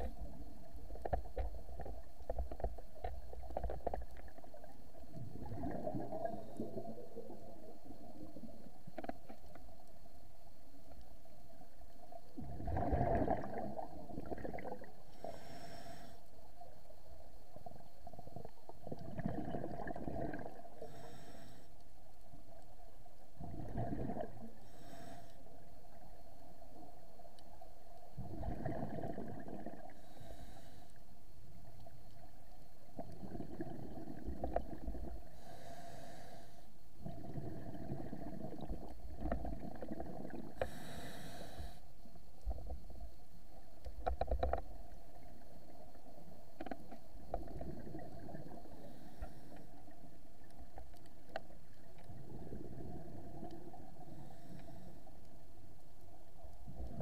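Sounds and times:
exhaled air bubbling: 0.0s - 9.3s, 12.3s - 15.6s, 18.2s - 21.2s, 23.4s - 25.0s, 28.1s - 30.3s, 32.9s - 36.1s, 37.0s - 41.6s, 46.6s - 54.5s
regulator inhalation hiss: 15.1s - 16.4s, 20.8s - 21.8s, 24.6s - 25.6s, 30.0s - 31.0s, 35.4s - 36.8s, 40.6s - 42.0s.

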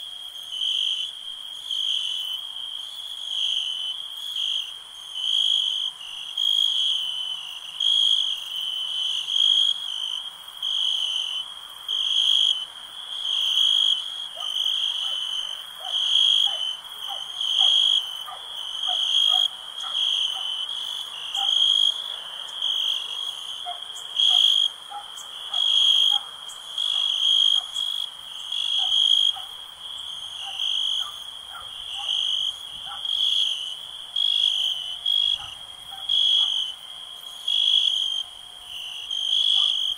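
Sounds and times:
crickets chirping: 0.0s - 39.9s
frogs calling: 13.2s - 39.9s.

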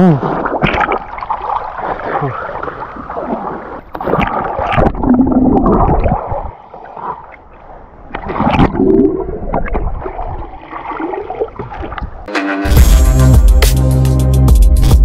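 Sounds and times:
river water splashing: 0.0s - 8.8s, 9.6s - 12.3s.

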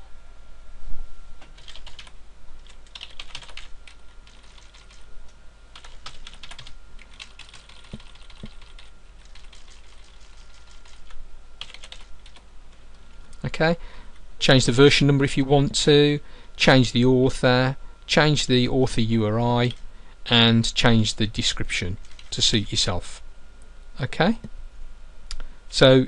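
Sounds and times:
typing on computer keyboard: 1.6s - 5.0s, 5.8s - 12.4s, 22.0s - 22.3s.

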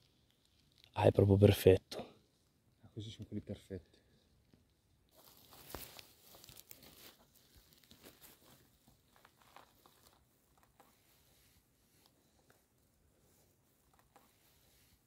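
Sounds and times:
grass and dry leaves rustling: 4.1s - 15.0s.

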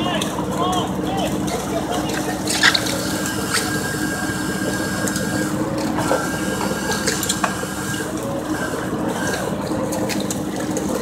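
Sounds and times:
boat engine and deck machinery: 0.0s - 11.0s
thin whine: 2.4s - 10.3s.

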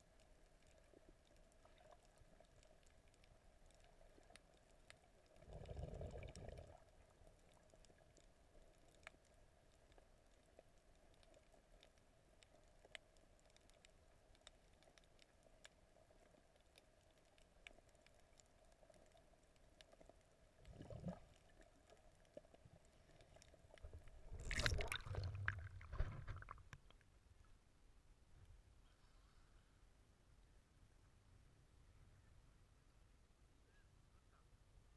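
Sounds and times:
faint underwater hum: 0.0s - 34.6s
water sloshing and rushing: 23.8s - 26.8s.

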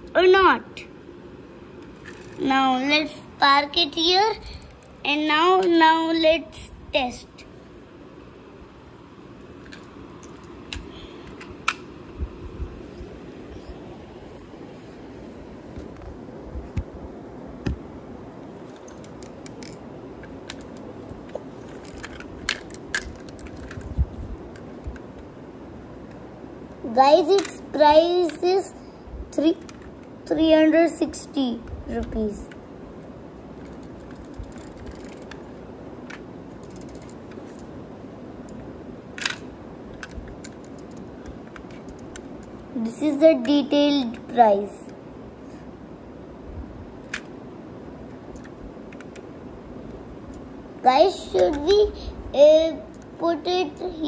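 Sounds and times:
toy truck clicks and taps: 27.2s - 27.6s.

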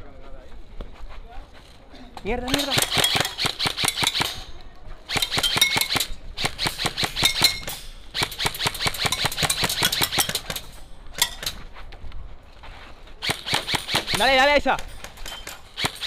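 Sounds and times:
airsoft rifle firing: 2.4s - 11.5s, 13.2s - 16.0s.

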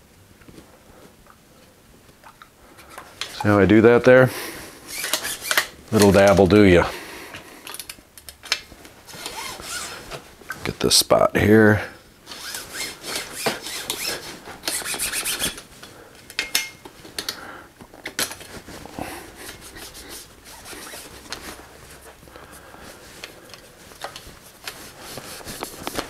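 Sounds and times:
cloth rag rubbing bicycle frame: 4.6s - 6.2s, 9.1s - 10.2s, 12.3s - 15.7s, 18.5s - 26.0s.

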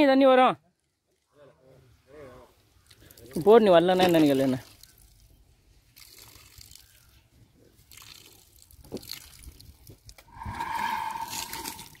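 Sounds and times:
water dripping and trickling: 2.8s - 12.0s
water gurgling pour: 7.9s - 12.0s.

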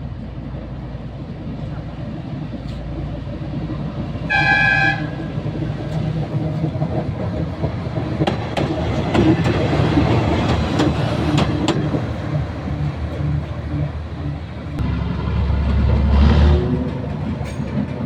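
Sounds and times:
diesel engine rumble: 0.0s - 18.0s
locomotive horn toot: 4.3s - 5.4s
wheels clicking over rail joints: 5.0s - 14.5s.

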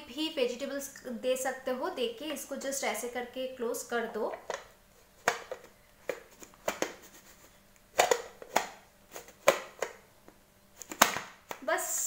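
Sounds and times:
plastic lid clicks and knocks: 4.4s - 7.0s, 8.0s - 8.8s, 9.4s - 10.0s.

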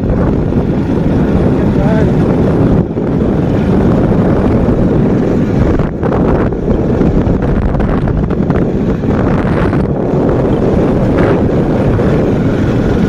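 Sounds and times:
wind buffeting microphone: 0.0s - 13.0s.

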